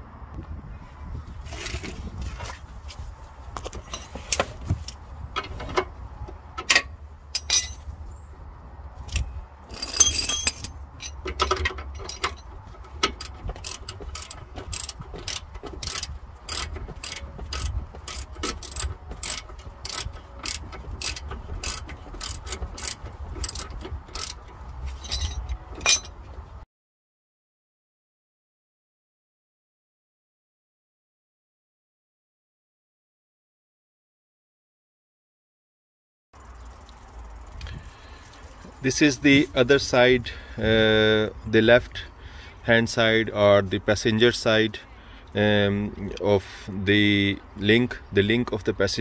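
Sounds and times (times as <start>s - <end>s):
metal clank: 6.6s - 8.3s, 9.7s - 14.4s, 24.9s - 26.3s
ratchet wrench clicking: 13.1s - 24.5s.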